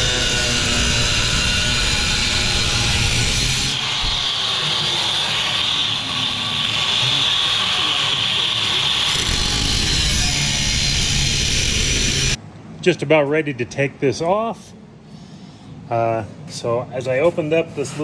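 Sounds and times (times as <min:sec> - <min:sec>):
angle grinder cutting steel: 0:00.0 - 0:12.4.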